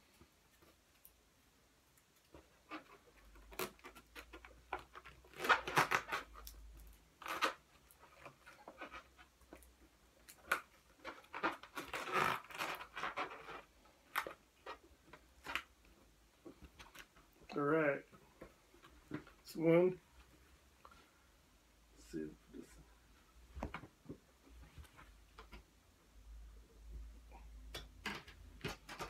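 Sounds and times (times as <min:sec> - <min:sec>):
rubber balloons rubbing: 0:11.2 - 0:14.9.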